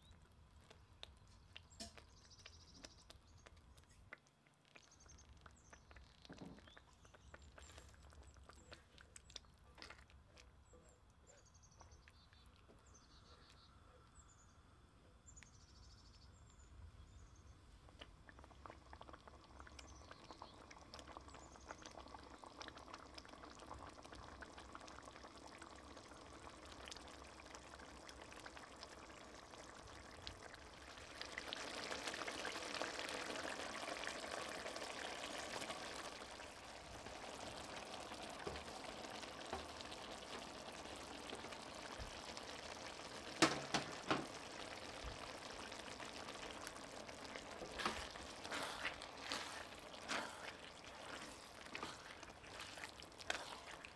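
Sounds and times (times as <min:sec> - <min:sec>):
sauce simmering: 0:00.0 - 0:14.6, 0:16.2 - 0:53.9
sharp knocks on pan: 0:43.4 - 0:44.3
spatula scraping wok: 0:47.6 - 0:53.9.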